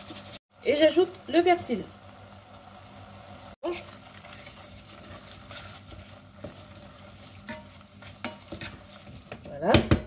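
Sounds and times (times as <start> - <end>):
seafood sizzling in a saucepan: 0.0 - 9.7.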